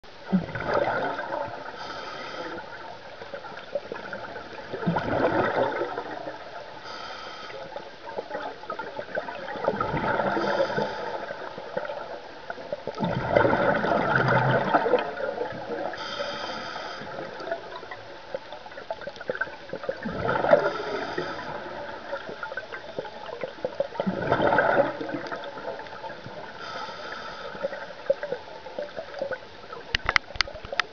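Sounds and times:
exhaled bubbles gurgling: 0.1s - 30.9s
regulator hiss on inhale: 1.7s - 3.2s, 6.7s - 8.0s, 10.3s - 11.7s, 15.9s - 17.6s, 20.5s - 22.3s, 26.4s - 28.2s.

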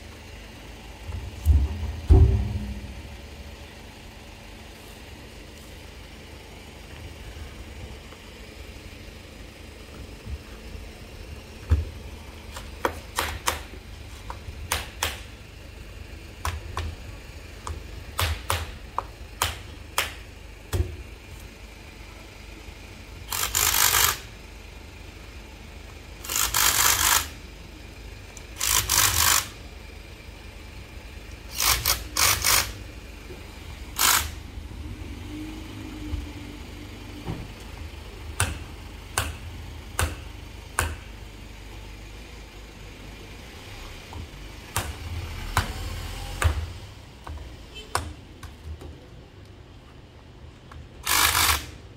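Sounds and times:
tools and parts clicking: 26.2s - 27.3s, 28.6s - 29.6s.

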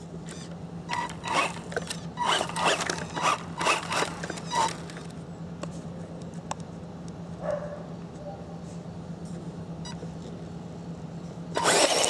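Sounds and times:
rc car motor bursts: 0.3s - 5.1s, 11.5s - 12.0s.

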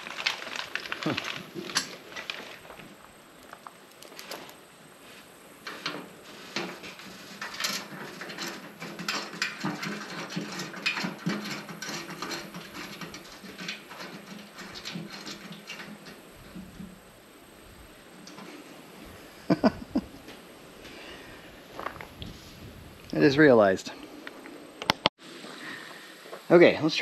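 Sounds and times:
small metal clicks and scrapes: 0.0s - 4.6s, 5.6s - 17.0s.

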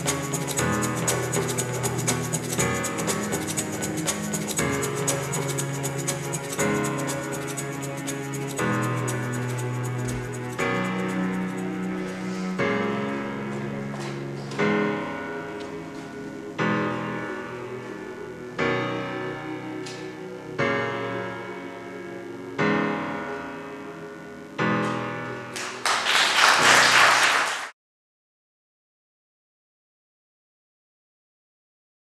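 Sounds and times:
slow piano chords: 0.0s - 27.1s
audience applause: 25.5s - 27.7s.

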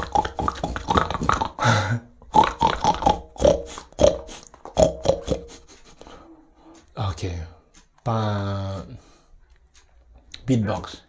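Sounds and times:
man imitating pig oinks: 0.0s - 5.6s.

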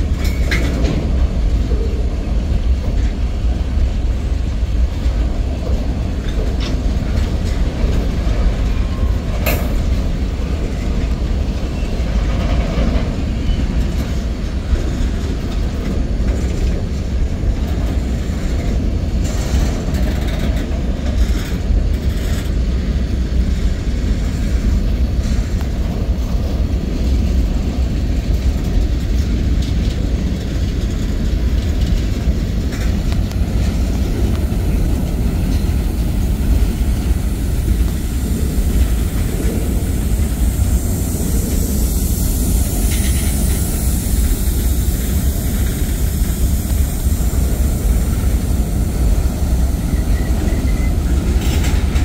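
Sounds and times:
freight train rumbling past: 0.0s - 52.0s
high hiss: 32.2s - 52.0s.

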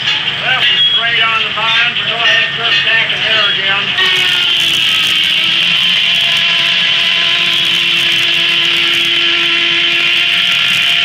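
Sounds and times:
circular saw blade cutting log: 4.0s - 11.0s.

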